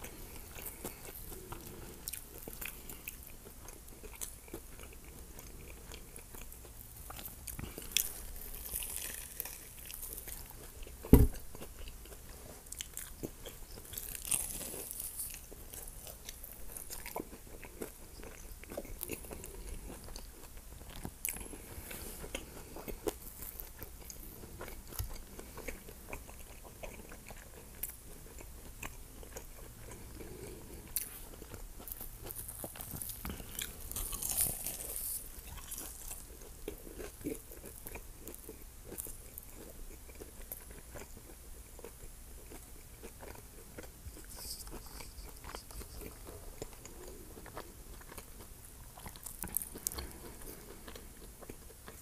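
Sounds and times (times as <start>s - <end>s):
crunching crispy coating: 0.0s - 30.2s, 30.8s - 52.0s
close biting and chewing: 0.0s - 52.0s
sharp loud knock: 11.1s - 11.4s.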